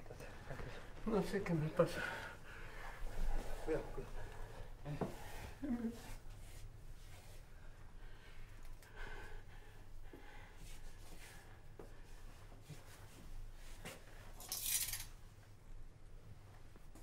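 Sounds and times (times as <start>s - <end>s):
metal cutlery clinking: 14.4s - 15.1s.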